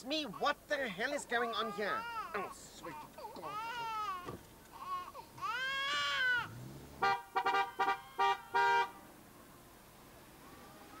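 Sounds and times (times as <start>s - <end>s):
car horn short toots: 7.0s - 9.0s.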